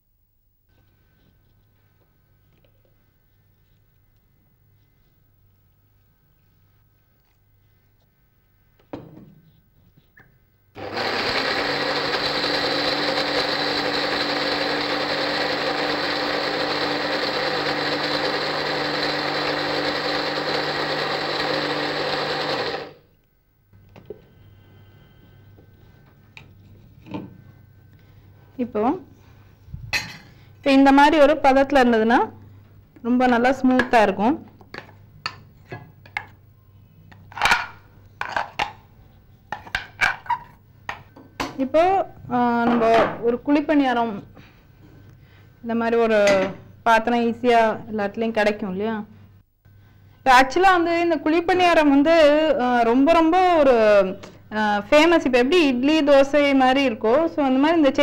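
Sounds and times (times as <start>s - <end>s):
mixer grinder motor whining: 10.8s - 23.0s.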